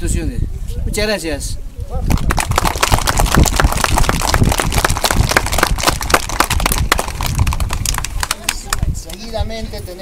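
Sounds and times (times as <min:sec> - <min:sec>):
crowd applauding: 0:02.1 - 0:08.9.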